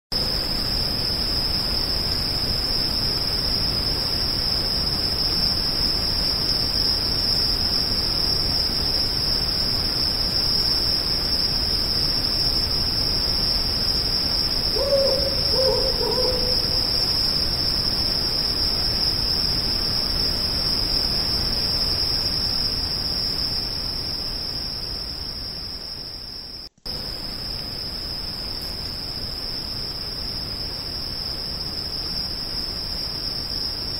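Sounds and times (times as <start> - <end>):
background hiss: 0.2 - 33.9
high-pitched insect trill: 0.2 - 33.9
owl hoots: 14.7 - 17.1.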